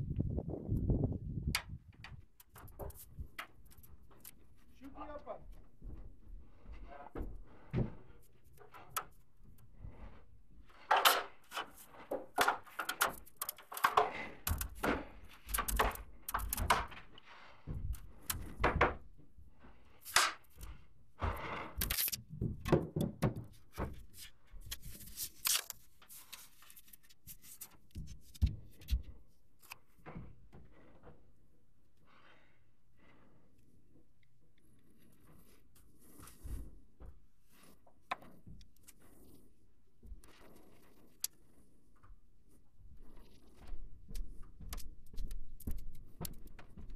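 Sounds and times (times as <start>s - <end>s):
thumps and knocks on ceiling hatch: 5.5s - 10.2s, 10.8s - 19.9s, 20.5s - 24.6s, 27.8s - 31.3s, 43.6s - 46.9s.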